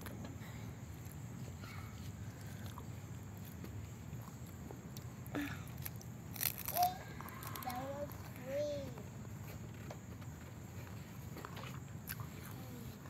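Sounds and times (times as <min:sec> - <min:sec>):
lettuce leaf crunching: 0:04.2 - 0:08.4.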